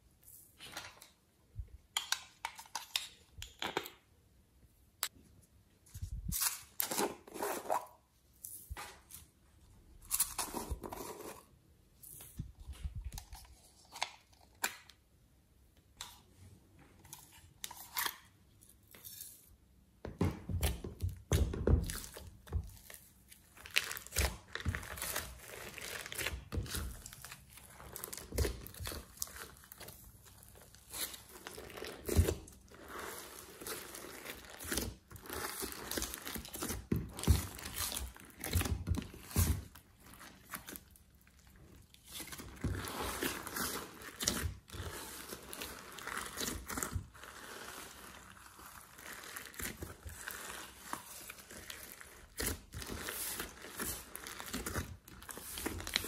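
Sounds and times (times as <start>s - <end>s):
slime squishing and crackling: 20.5s - 56.0s.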